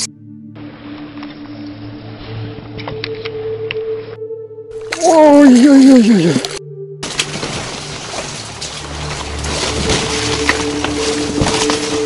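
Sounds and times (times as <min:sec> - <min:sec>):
low droning music: 0:00.0 - 0:12.0.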